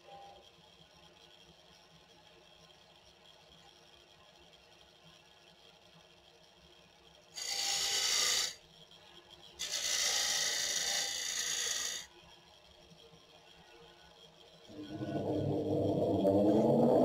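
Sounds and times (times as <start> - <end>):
faint lathe hum: 0.0 - 17.0
gouge cutting spinning wood: 7.4 - 8.6, 9.6 - 12.1, 14.7 - 17.0.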